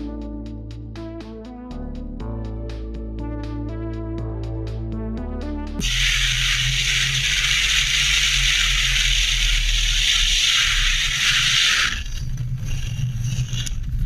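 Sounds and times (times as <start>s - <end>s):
car engine drone: 5.8s - 14.0s.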